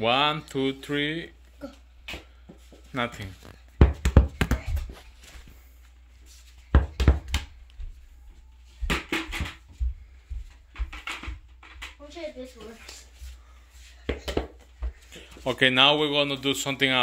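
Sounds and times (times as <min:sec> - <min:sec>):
balls landing on carpet: 0:03.8 - 0:05.0, 0:06.7 - 0:07.6, 0:08.8 - 0:11.9, 0:14.0 - 0:15.0
toy balls hitting plastic bucket: 0:10.7 - 0:12.0.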